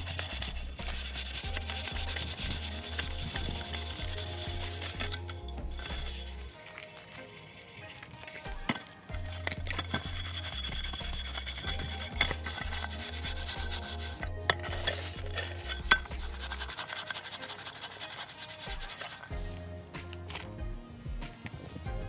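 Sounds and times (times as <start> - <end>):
scouring pad rasping on metal pot: 0.0 - 19.4.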